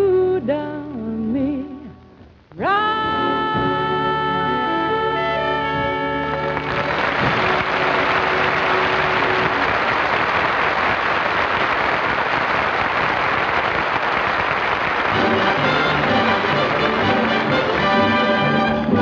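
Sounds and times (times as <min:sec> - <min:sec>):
audience applauding: 0:06.3 - 0:19.0
big band and orchestra chord: 0:15.1 - 0:19.0.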